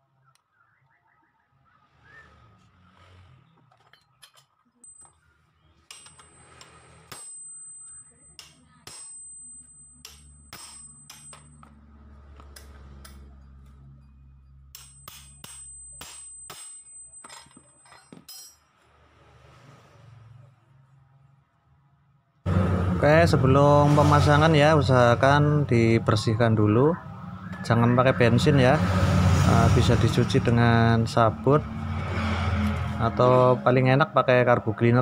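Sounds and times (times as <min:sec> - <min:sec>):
metal parts knocking together: 0:05.9 - 0:07.4
wrench clicking and clanking: 0:05.9 - 0:07.4.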